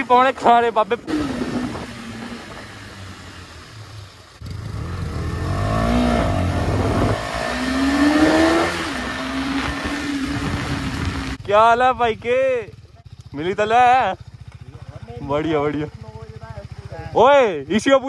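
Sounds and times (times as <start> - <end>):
motorcycle engine revving: 0.0 - 18.0.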